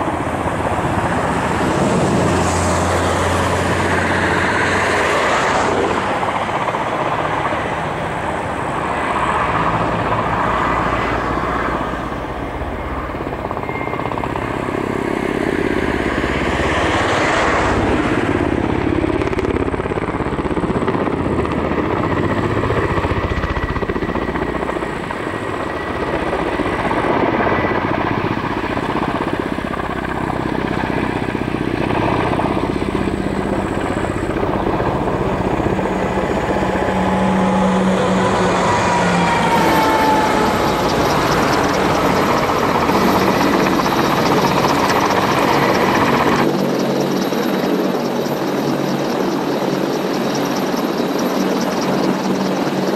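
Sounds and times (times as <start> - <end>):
helicopter rotors and engines: 0.0 - 52.9
faint steady whine: 17.7 - 52.9.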